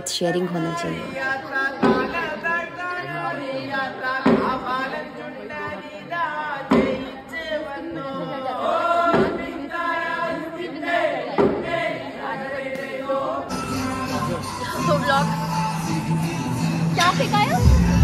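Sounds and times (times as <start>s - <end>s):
voices chanting in chorus: 0.8s - 14.7s
recorded music: 13.5s - 18.0s.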